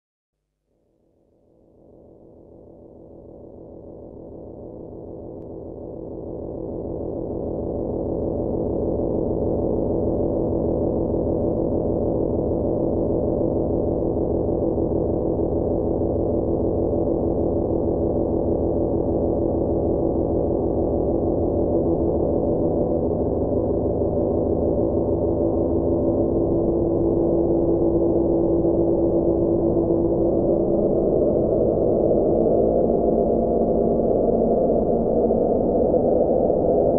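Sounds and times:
synthesizer drone: 0:18.4 - 0:36.9.

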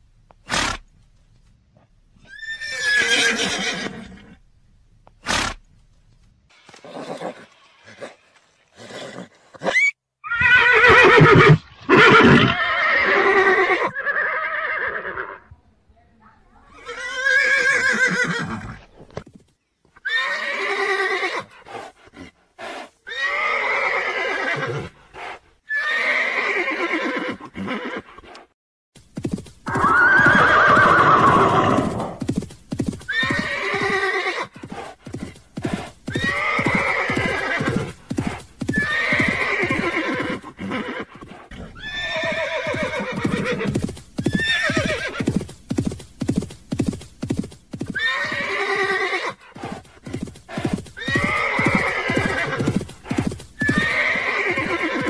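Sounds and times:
horse whinnying: 0:02.2 - 0:04.4, 0:06.7 - 0:08.2, 0:08.8 - 0:15.4, 0:16.8 - 0:18.9, 0:20.0 - 0:21.6, 0:23.1 - 0:24.9, 0:25.7 - 0:28.4, 0:29.6 - 0:32.3, 0:33.0 - 0:45.4, 0:47.8 - 0:55.0
hooves clip-clopping: 0:21.4 - 0:23.0, 0:29.0 - 0:41.6, 0:42.2 - 0:55.0.

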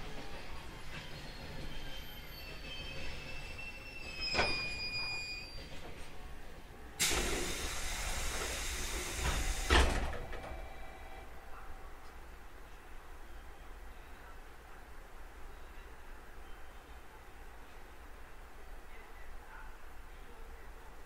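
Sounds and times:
compressed air hissing: 0:07.0 - 0:09.8.

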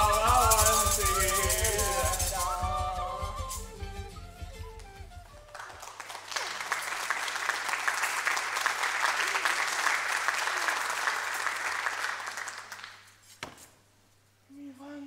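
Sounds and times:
song ending: 0:00.0 - 0:05.5
audience applauding: 0:04.8 - 0:13.1.

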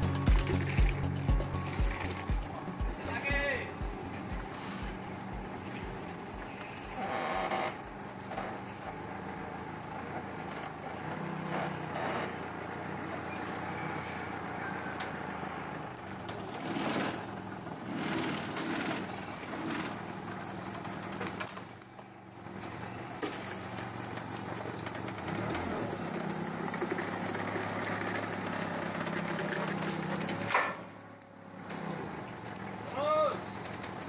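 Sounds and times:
forklift engine running: 0:00.0 - 0:34.0.

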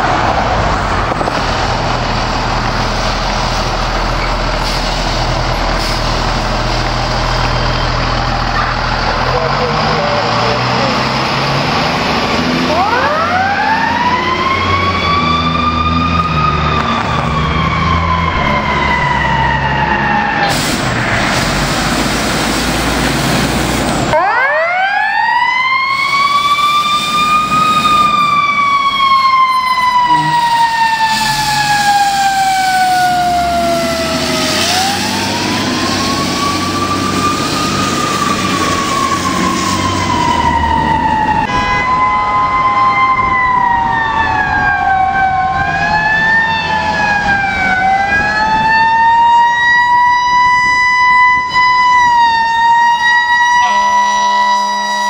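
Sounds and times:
diesel truck engine rumble: 0:00.0 - 0:54.7
level siren tone: 0:11.9 - 0:20.5, 0:24.1 - 0:55.0
mechanical siren wailing: 0:12.3 - 0:20.5, 0:24.1 - 0:55.0.

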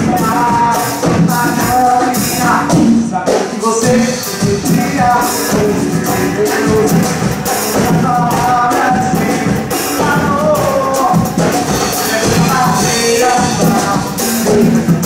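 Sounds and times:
drum kit and percussion: 0:00.0 - 0:15.0
live band playing: 0:00.0 - 0:15.0
man singing into microphone: 0:00.0 - 0:15.0.

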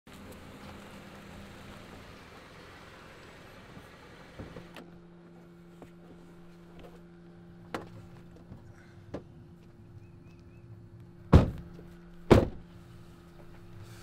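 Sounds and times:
steady low hum: 0:04.6 - 0:14.0
car door unlatching and opening: 0:11.3 - 0:12.7.

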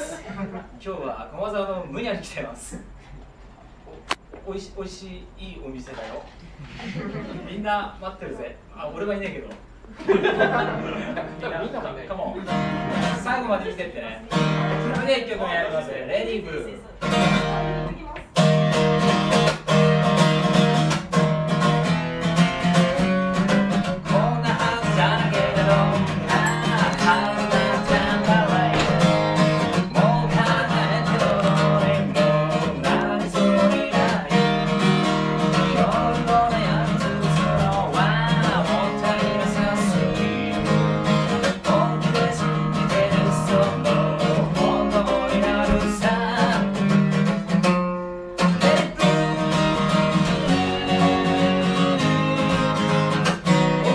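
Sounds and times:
acoustic guitar strumming: 0:10.3 - 0:13.5, 0:14.2 - 0:15.3, 0:17.0 - 0:53.9.

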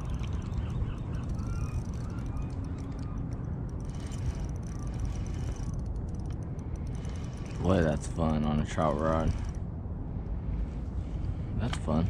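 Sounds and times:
faint rising chirps: 0:00.0 - 0:07.7
low rumbling outdoor noise: 0:00.0 - 0:12.0.

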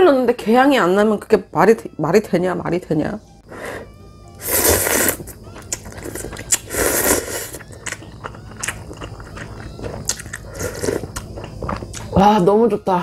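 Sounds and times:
slurping noodles: 0:03.5 - 0:07.7, 0:08.7 - 0:11.3
chewing clicks: 0:07.6 - 0:12.1.

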